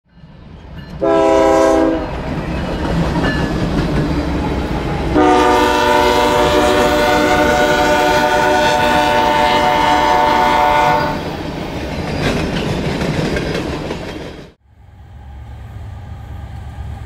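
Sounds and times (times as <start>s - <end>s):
low train rumble: 0.1s - 17.0s
train air horn blasts: 1.0s - 2.1s, 5.1s - 11.2s.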